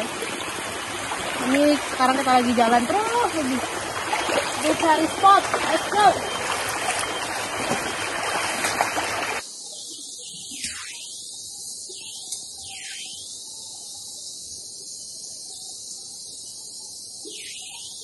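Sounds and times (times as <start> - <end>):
rushing stream water: 0.0 - 9.4.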